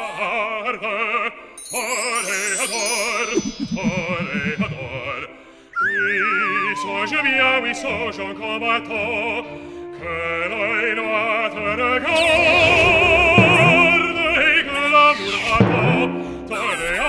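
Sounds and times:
cartoon voice singing opera: 0.0 - 1.1, 5.8 - 9.0, 11.6 - 16.0
musical accompaniment: 1.6 - 15.8.

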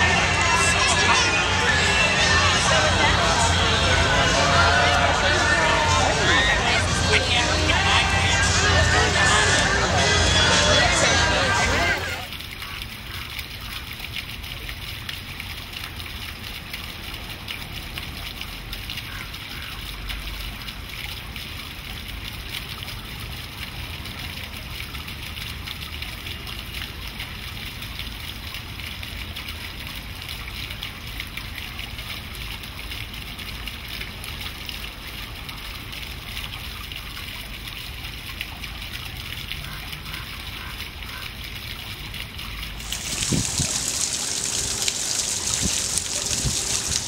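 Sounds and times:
fountain water splashing: 0.0 - 47.0.

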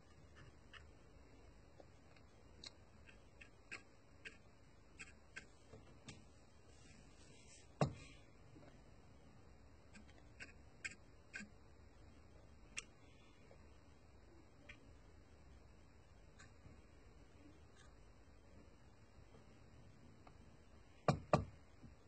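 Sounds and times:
paintbrush tapping plastic wheels: 1.7 - 6.3.

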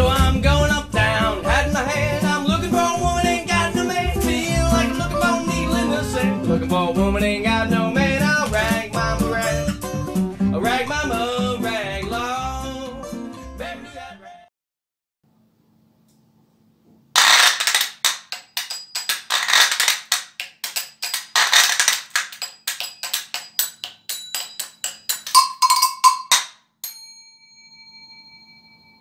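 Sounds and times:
bell struck: 22.8 - 29.0.

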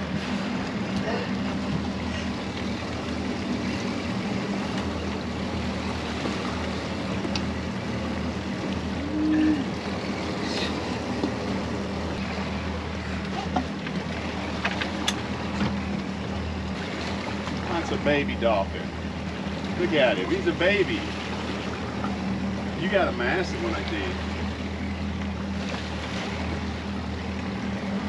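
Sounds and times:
outboard motors idling: 0.0 - 28.0
water noise: 0.0 - 28.0
wind: 0.0 - 28.0
short low tone: 9.0 - 9.7.

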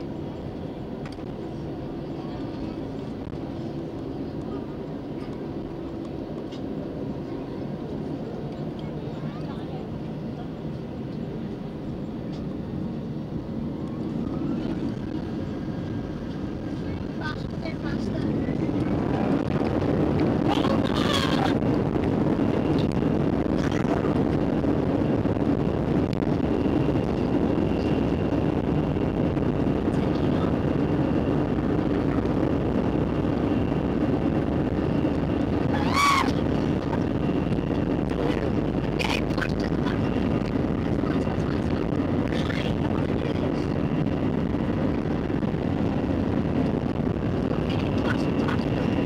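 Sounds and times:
aircraft cabin rumble: 0.0 - 49.0.

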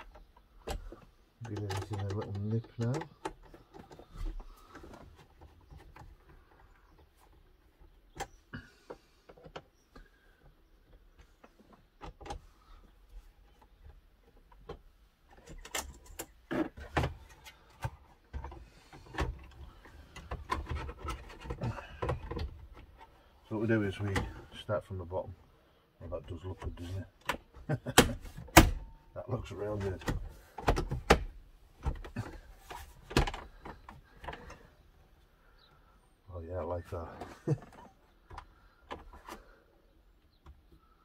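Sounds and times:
plastic trim clicks and knocks: 29.8 - 32.4.

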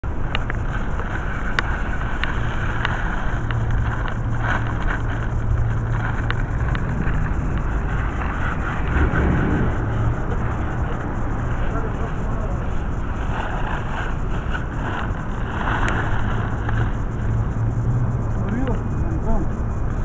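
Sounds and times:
distant city traffic hum: 0.0 - 20.0
wind buffeting microphone: 0.0 - 20.0.

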